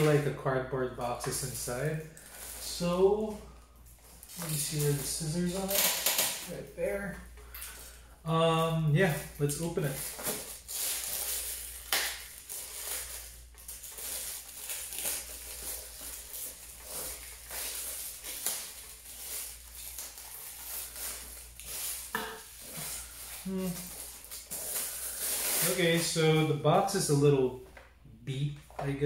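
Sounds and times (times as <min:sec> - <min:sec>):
wrapping crinkling and rustling: 0:00.0 - 0:27.8.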